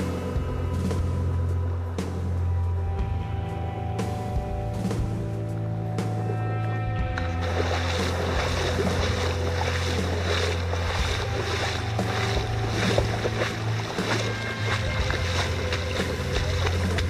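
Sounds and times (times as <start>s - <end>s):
water splashing from wading: 7.1s - 17.0s.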